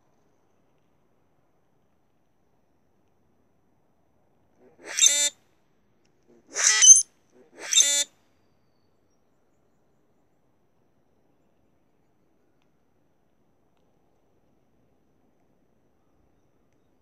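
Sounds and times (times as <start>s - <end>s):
grackles harsh squeaky calls: 4.8s - 5.3s, 6.5s - 7.0s, 7.6s - 8.1s.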